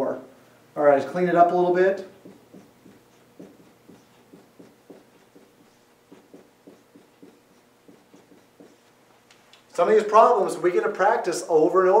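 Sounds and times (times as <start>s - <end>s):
marker writing on whiteboard: 2.0s - 9.2s.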